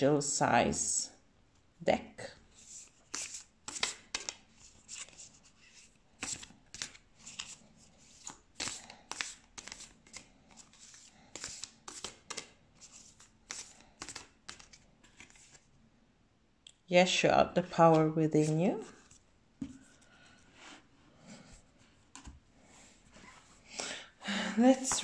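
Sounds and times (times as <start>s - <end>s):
cards shuffling: 2.6s - 15.7s.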